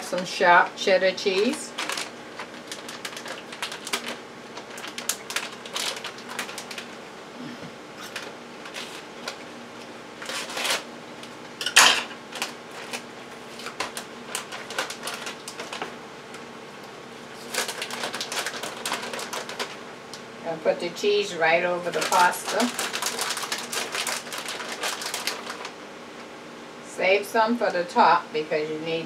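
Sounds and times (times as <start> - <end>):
plastic bag crinkling: 1.2 - 7.1, 8.0 - 9.5, 10.2 - 10.9, 12.2 - 19.9, 21.6 - 25.8.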